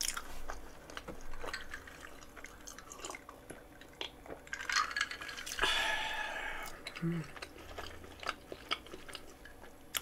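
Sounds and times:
chewing clicks: 6.6 - 10.0.

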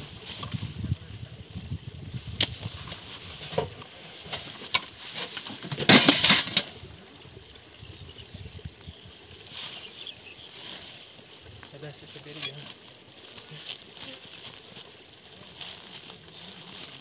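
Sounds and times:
plastic sack rustling and scraping: 12.2 - 17.0.

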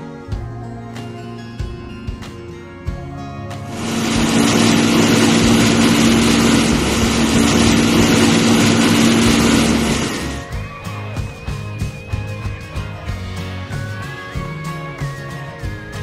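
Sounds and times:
music: 0.0 - 16.0
rushing noise: 3.7 - 10.5
truck engine droning: 3.7 - 10.5.

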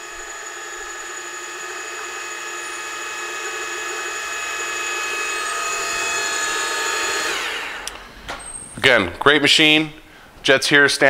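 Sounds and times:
drill press whining: 0.0 - 8.7.

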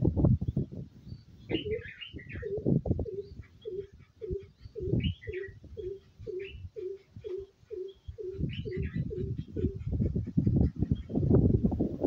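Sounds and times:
high bird chirps: 1.1 - 9.7.

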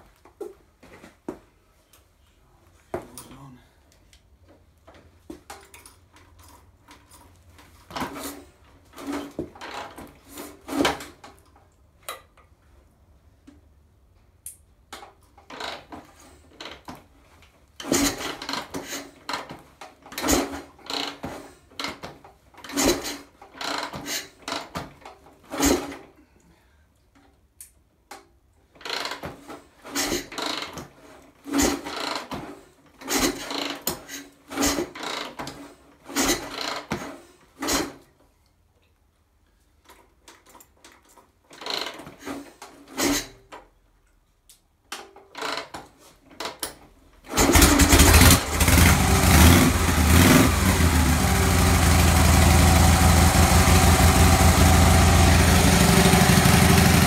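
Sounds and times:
motorcycle kickstarter turning engine over: 47.3 - 57.0.

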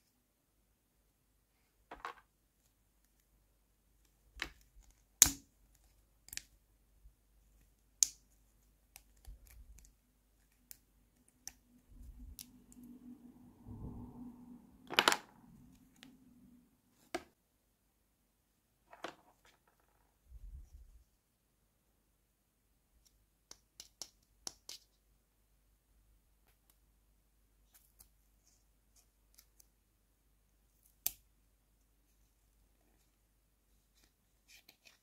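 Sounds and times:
faint low drone: 12.9 - 14.8.

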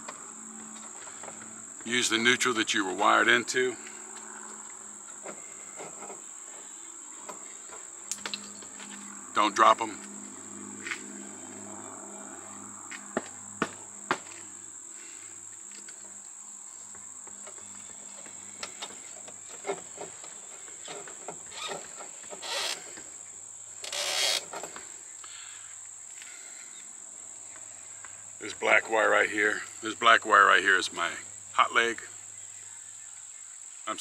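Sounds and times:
high-pitched insect trill: 0.0 - 34.0
scraping rustle: 5.1 - 9.1, 15.7 - 23.2, 23.8 - 25.0.

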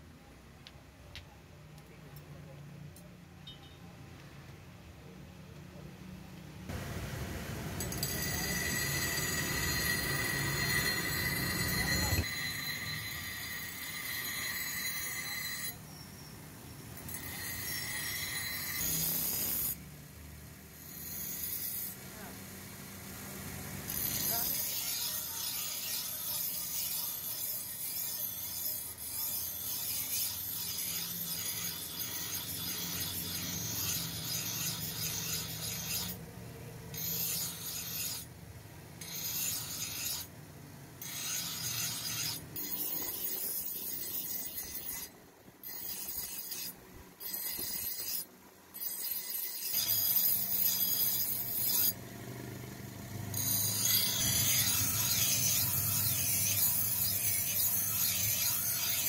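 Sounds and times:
knife on grinding wheel: 7.7 - 19.8, 20.7 - 22.5, 23.7 - 36.3, 36.9 - 38.3, 39.0 - 40.3, 41.0 - 59.0.

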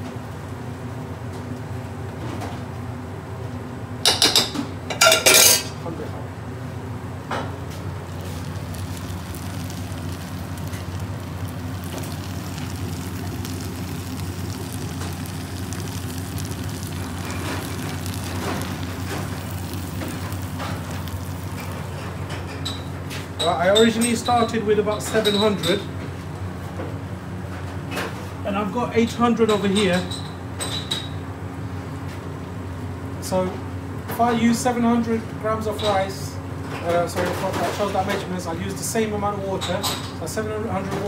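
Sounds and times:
kitchen extractor hum: 0.0 - 41.0
metal utensil clattering on pot: 4.1 - 5.7
curry sizzling in a pot: 7.8 - 23.5.

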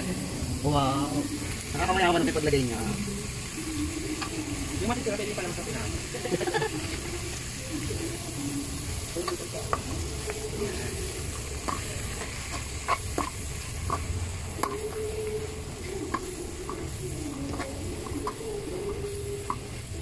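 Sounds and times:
vegetables frying low sizzle: 0.0 - 20.0
metal ladle scraping wok: 11.6 - 19.6.

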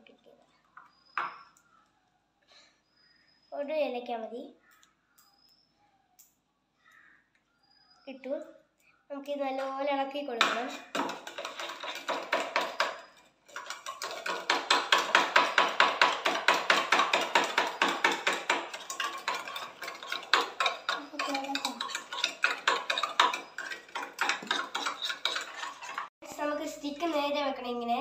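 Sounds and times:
metal spoon clinking in tumbler: 10.9 - 26.1.

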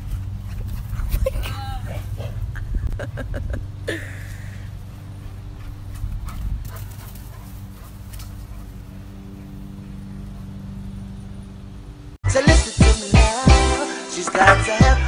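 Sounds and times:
running thumps and clicks: 0.0 - 1.3, 4.8 - 12.2
dog galloping on grass: 0.0 - 2.5, 4.7 - 12.1
low mechanical hum: 0.0 - 12.2.

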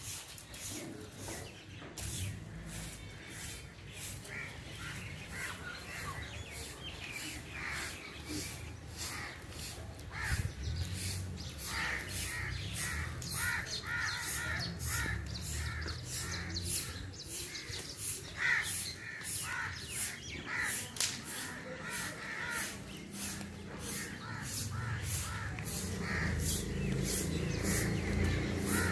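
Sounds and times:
bird calling: 0.1 - 28.9.

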